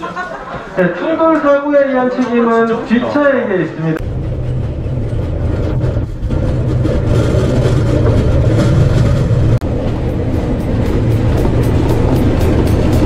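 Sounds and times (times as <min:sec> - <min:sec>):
steel wheels rolling on rail track: 0:04.0 - 0:13.0.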